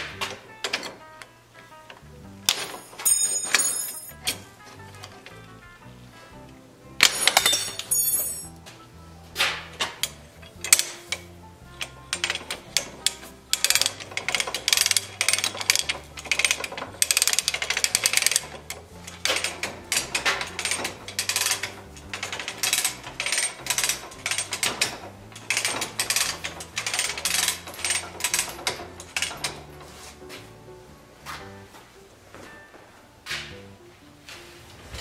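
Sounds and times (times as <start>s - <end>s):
crank ratchet clicking: 9.8s - 29.8s.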